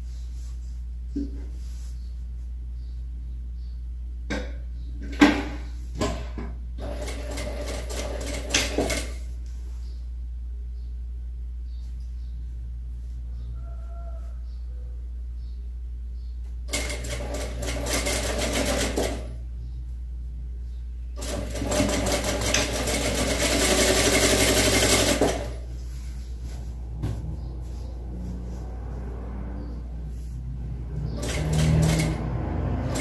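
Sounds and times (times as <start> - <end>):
sewing machine stitching: 6.8 - 9.2, 16.7 - 19.3, 21.2 - 25.6, 31.2 - 33.0.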